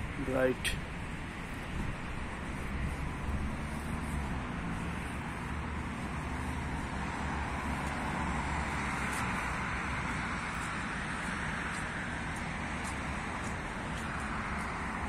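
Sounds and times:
cars driving past: 0.0 - 15.0
city road traffic hum: 0.0 - 15.0.

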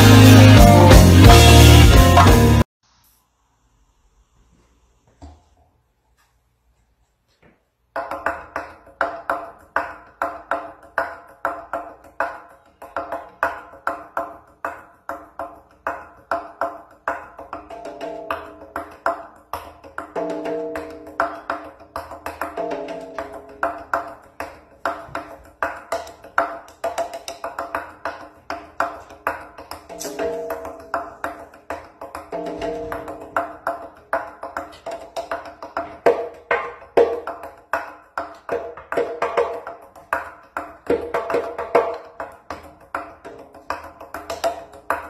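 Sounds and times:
congas played by hand: 0.0 - 2.6, 7.8 - 45.0.

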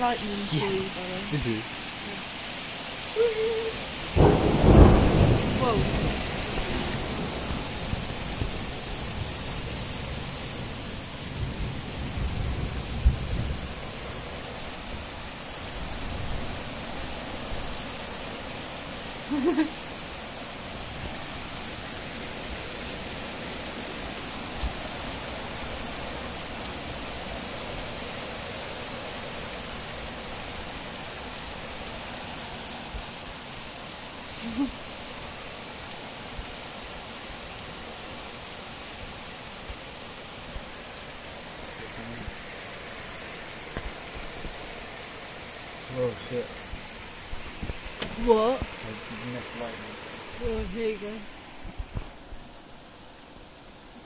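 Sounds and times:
heavy rain hissing: 0.0 - 54.0
thunder rumbling: 4.0 - 13.8.

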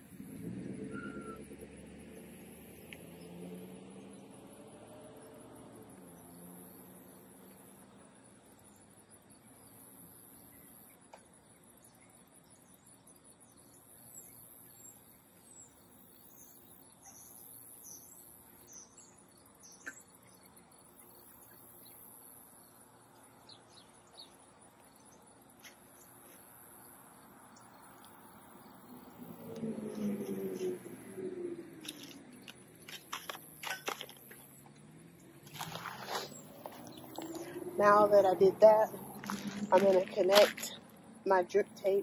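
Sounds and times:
birds chirping: 27.5 - 42.0.

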